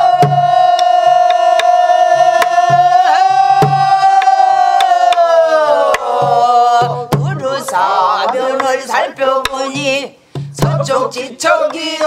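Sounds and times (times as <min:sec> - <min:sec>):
person singing a long held note: 0:00.0 - 0:07.6
deep drum palm thumps: 0:06.2 - 0:07.7, 0:09.7 - 0:11.0.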